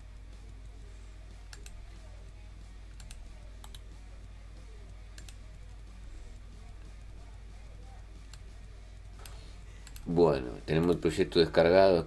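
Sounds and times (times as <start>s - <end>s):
low steady hum: 0.0s - 12.0s
computer mouse clicking: 1.5s - 1.8s, 2.9s - 3.9s, 5.1s - 5.4s, 9.2s - 10.1s.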